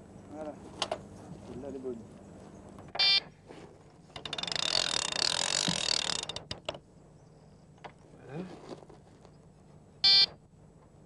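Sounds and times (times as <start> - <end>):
bite alarm beep: 3.0 - 3.3, 10.0 - 10.4
fishing reel ratchet clicking: 4.2 - 6.5.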